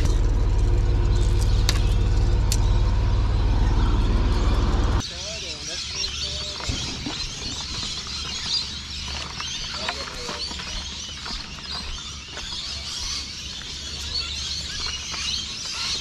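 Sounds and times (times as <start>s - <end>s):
steady low rumble: 0.0s - 5.2s
small birds chirping: 0.0s - 16.0s.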